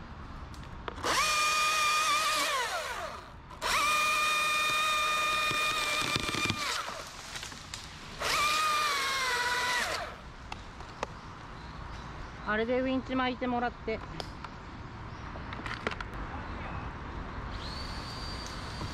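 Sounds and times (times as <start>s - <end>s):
chainsaw cutting wood: 1.0s - 10.2s.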